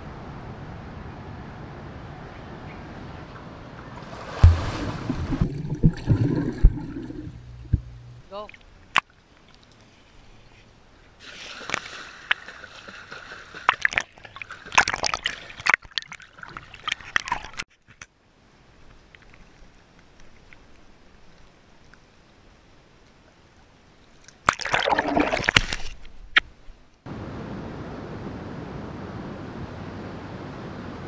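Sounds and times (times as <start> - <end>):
water splashing: 3.3 - 10.6, 11.2 - 17.7, 24.2 - 26.1
steady underwater hiss: 9.7 - 13.7.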